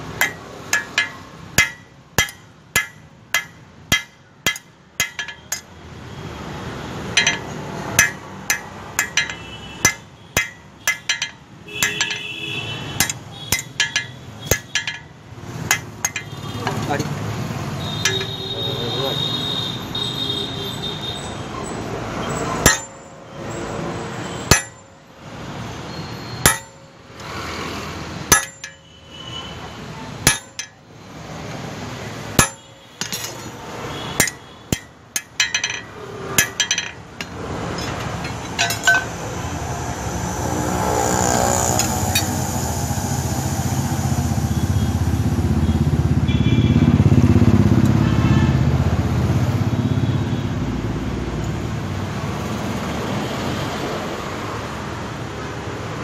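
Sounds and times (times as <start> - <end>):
hammer striking steel on anvil: 0.0 - 5.7, 7.1 - 12.3, 13.0 - 17.1, 18.0 - 18.4, 22.6 - 23.1, 24.4 - 25.0, 26.4 - 27.4, 28.2 - 28.9, 30.2 - 30.9, 32.3 - 39.4, 41.0 - 42.4
low rumbling noise: 38.4 - 45.6.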